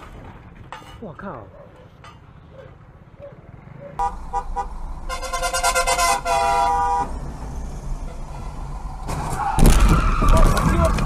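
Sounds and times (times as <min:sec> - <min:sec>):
low rumble of traffic: 0:00.0 - 0:11.0
car horns honking: 0:04.0 - 0:07.4, 0:08.0 - 0:09.7.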